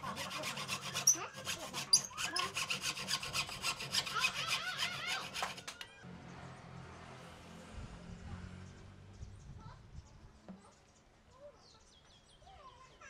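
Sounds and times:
hacksaw cutting wood: 0.0s - 5.8s.

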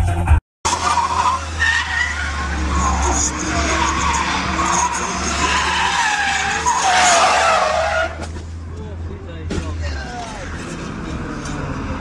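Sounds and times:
engine and road noise drone: 0.0s - 12.0s
car tyres squealing: 0.7s - 8.6s.

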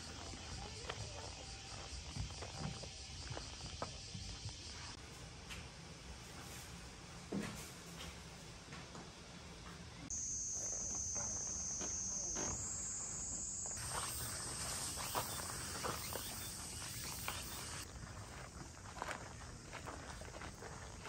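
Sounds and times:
cicadas buzzing: 0.0s - 5.0s, 10.1s - 20.0s
faint footsteps: 6.3s - 21.0s.

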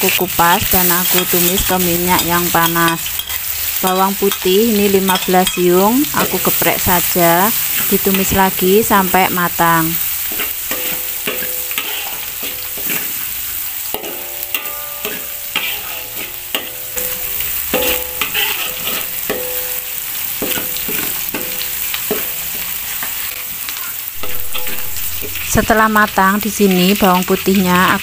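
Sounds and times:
garlic sizzling in hot oil: 0.0s - 28.0s
metal spatula knocking on wok: 10.3s - 13.0s, 13.9s - 19.8s, 20.4s - 22.4s, 24.2s - 25.4s.

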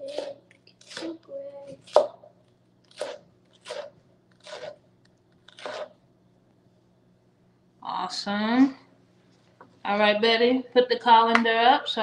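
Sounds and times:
knife chopping vegetables on board: 0.0s - 1.2s.

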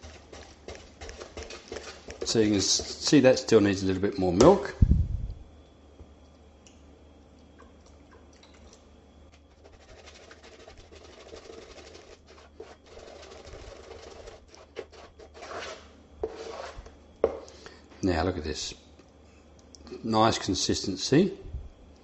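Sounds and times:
spoon beating batter: 0.0s - 4.7s, 8.5s - 17.6s
low steady hum: 0.0s - 22.0s.

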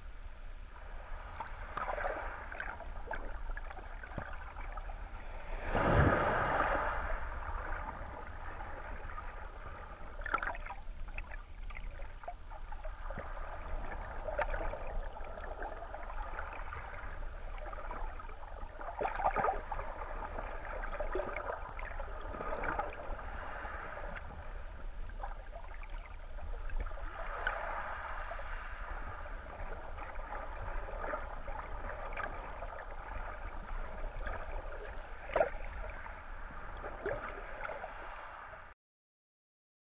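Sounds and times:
muffled underwater water surging: 0.0s - 38.8s
water whoosh: 0.8s - 11.2s, 19.0s - 38.8s.

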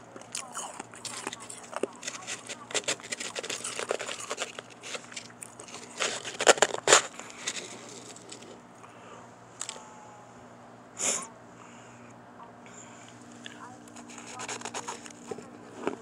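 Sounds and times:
ice crunching in mouth: 0.2s - 8.6s, 13.4s - 16.0s.

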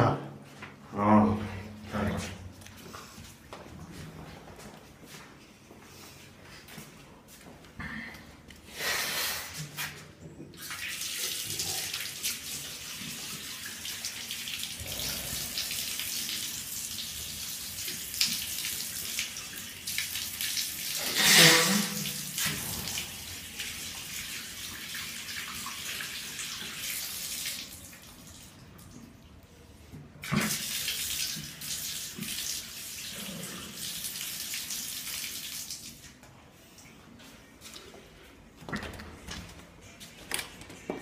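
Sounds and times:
person washing face: 8.2s - 29.1s, 30.1s - 36.2s
water running from sink tap: 10.6s - 28.5s, 30.2s - 36.0s.

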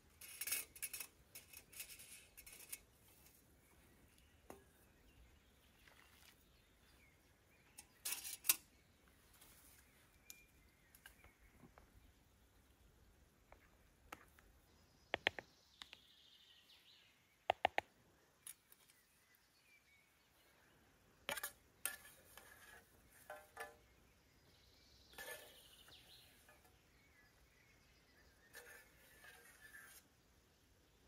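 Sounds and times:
soft rustling and scraping: 0.0s - 12.0s, 21.3s - 24.0s, 25.0s - 27.0s, 28.4s - 30.2s.

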